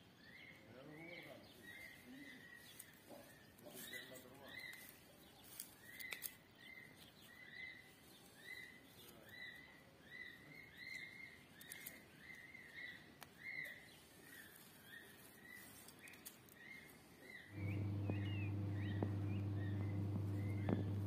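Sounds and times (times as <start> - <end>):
faint clicks: 17.5 - 21.0
chick peeping: 17.6 - 21.0.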